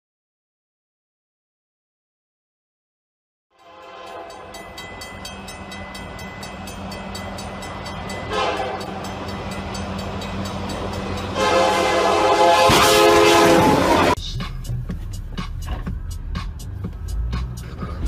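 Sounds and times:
locomotive horn: 0:03.5 - 0:04.6, 0:08.1 - 0:09.3, 0:10.9 - 0:14.2
railroad crossing bell dinging: 0:03.6 - 0:14.2
diesel locomotive rumble: 0:04.0 - 0:18.0.

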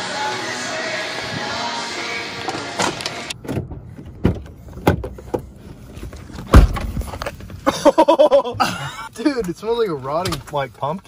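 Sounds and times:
car door shutting: 0:02.4 - 0:05.5, 0:06.3 - 0:07.6.

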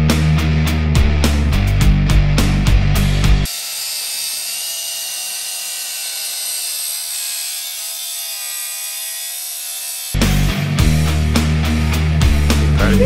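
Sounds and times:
angle grinder cutting steel: 0:03.4 - 0:10.2.

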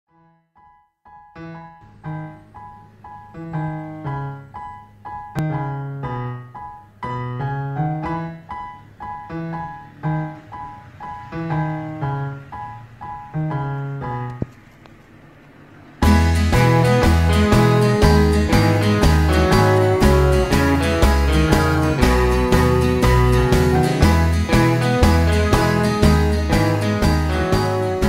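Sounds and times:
slow piano music: 0:00.6 - 0:28.0.

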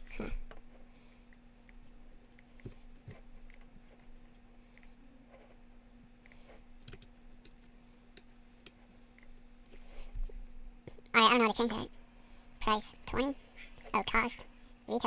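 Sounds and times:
steady low hum: 0:00.0 - 0:15.0
computer mouse clicks: 0:01.3 - 0:03.7.

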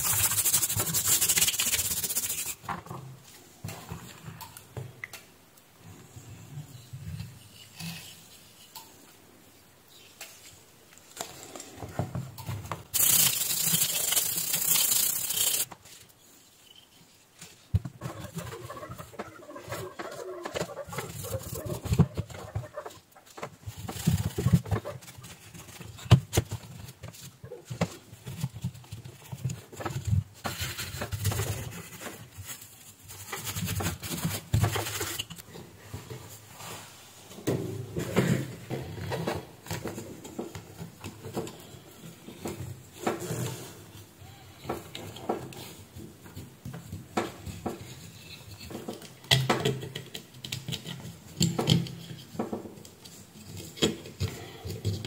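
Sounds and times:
cloth scrubbing circuit board: 0:00.0 - 0:02.6, 0:12.9 - 0:15.7
loud hiss: 0:12.9 - 0:15.7.

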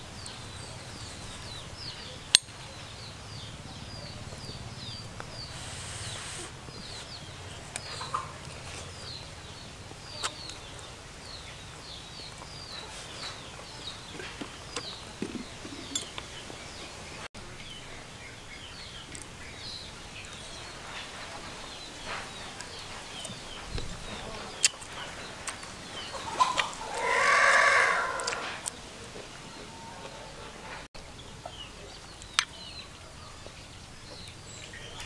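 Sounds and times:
chicks peeping: 0:03.3 - 0:16.9
rooster crowing: 0:26.8 - 0:28.6.

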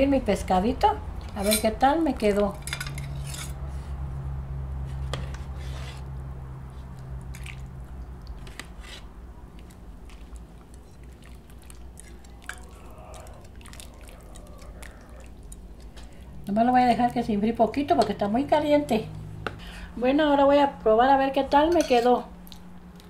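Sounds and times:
low steady hum: 0:00.0 - 0:23.0
broth pouring and dripping: 0:09.7 - 0:16.4.

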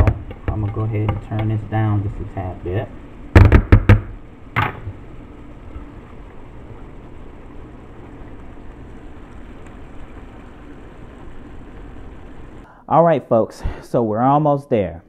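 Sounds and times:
sauce sizzling in a skillet: 0:04.4 - 0:12.7.

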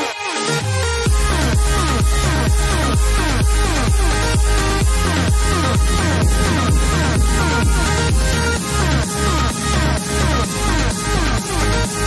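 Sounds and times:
deep kick drums: 0:04.4 - 0:11.4
electronic dance music: 0:04.5 - 0:12.0.

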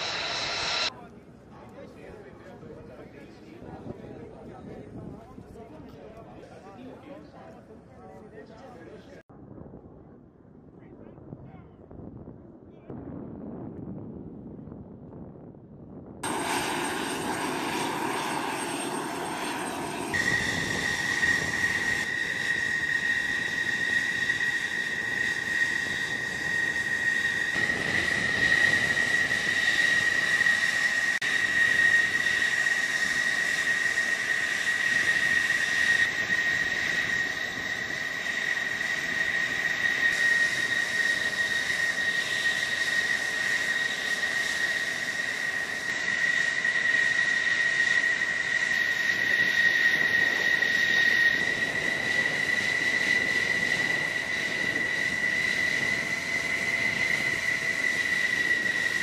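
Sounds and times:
jet engine whine: 0:00.0 - 0:01.0, 0:12.9 - 0:59.0.

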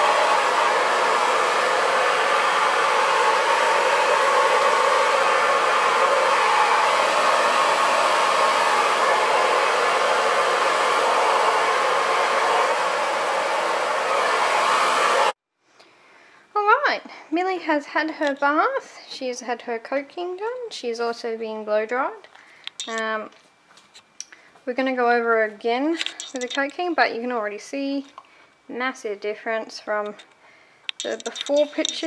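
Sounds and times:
hair dryer blowing: 0:00.0 - 0:15.4.

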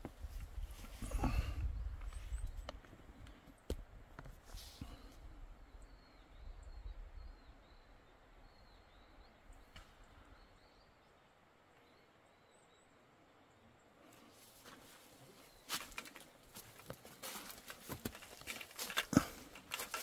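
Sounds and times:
bird chirping: 0:04.9 - 0:14.0.

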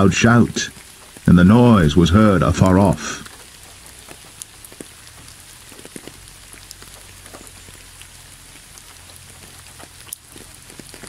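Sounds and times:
low steady rumble: 0:00.0 - 0:03.8
single raindrops ticking: 0:00.0 - 0:11.0
steady rain falling: 0:00.0 - 0:11.0.

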